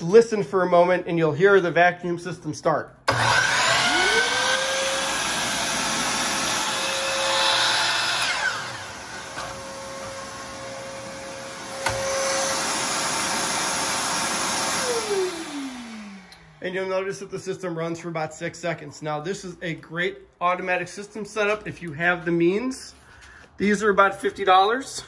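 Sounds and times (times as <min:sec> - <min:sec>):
miter saw running: 0:03.1 - 0:16.6
shop vacuum running: 0:03.1 - 0:17.4.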